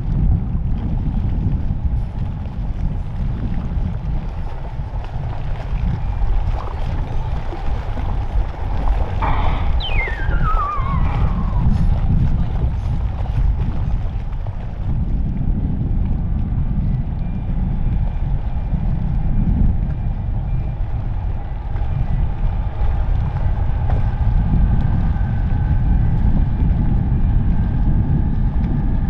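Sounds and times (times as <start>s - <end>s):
low rumble: 0.0s - 29.0s
wind noise on microphone: 0.0s - 29.0s
higher engine whine: 8.9s - 12.8s
jet engines whining: 9.2s - 12.2s.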